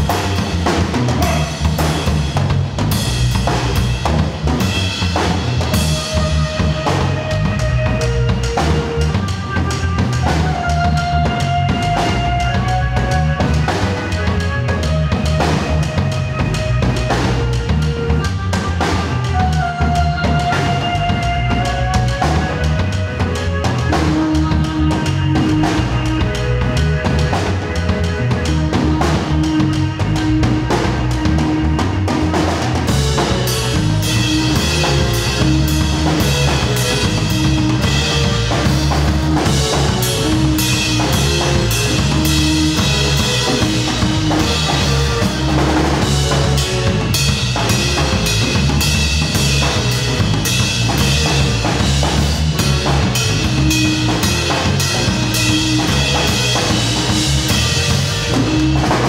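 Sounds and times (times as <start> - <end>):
drum kit: 0.0 - 59.0
electric bass: 0.0 - 59.0.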